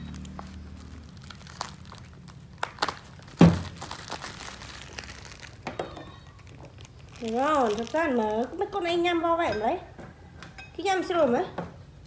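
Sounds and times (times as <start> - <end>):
food crinkling and cracking: 0.0 - 9.0
loud thump: 3.4 - 3.7.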